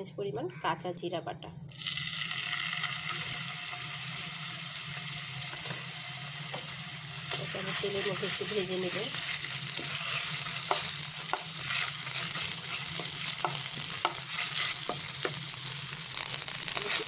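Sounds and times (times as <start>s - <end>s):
paste sizzling in hot oil: 1.7s - 17.0s.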